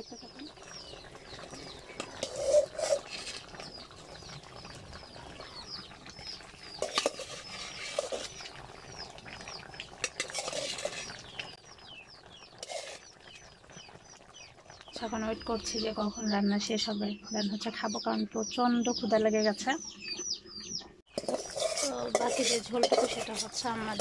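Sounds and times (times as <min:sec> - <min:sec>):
curry simmering: 0:00.0 - 0:17.0, 0:20.9 - 0:24.0
metal ladle stirring in pot: 0:01.6 - 0:03.8, 0:06.6 - 0:08.8, 0:09.9 - 0:11.6, 0:12.5 - 0:13.4, 0:21.1 - 0:24.0.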